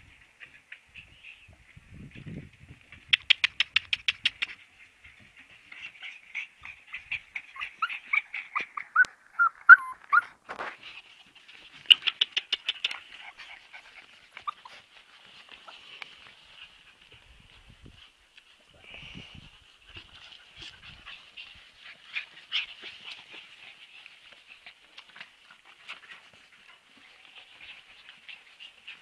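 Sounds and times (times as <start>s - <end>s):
puppies whining and yipping: 5.4s - 10.4s, 11.8s - 16.8s.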